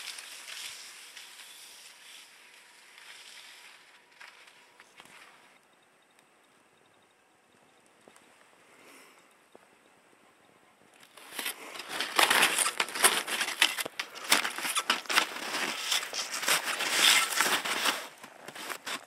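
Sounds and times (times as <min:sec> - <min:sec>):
skis crunching over snow: 0:00.0 - 0:05.6, 0:11.1 - 0:19.0.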